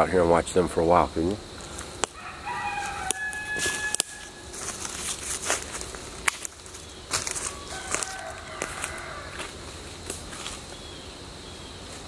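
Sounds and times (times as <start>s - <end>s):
twigs snapping: 1.6s - 2.2s, 2.8s - 9.1s
footsteps in dry leaves: 1.6s - 10.9s
rooster crowing: 2.1s - 4.5s, 7.4s - 9.6s.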